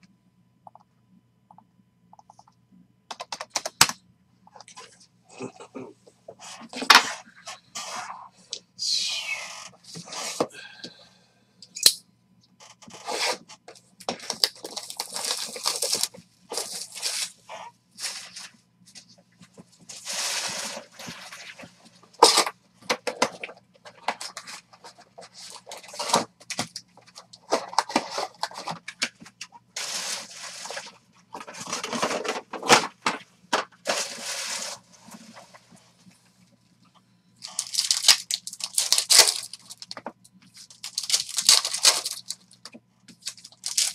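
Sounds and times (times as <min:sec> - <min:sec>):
packaging crinkling and tearing: 0:14.1 - 0:17.4, 0:19.9 - 0:29.1, 0:29.8 - 0:32.9, 0:33.8 - 0:34.8, 0:37.4 - 0:43.9.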